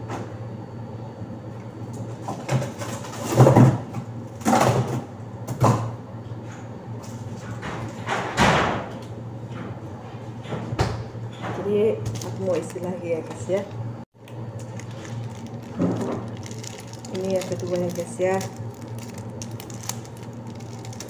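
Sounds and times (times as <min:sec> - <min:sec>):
steady low hum: 0:05.0 - 0:21.0.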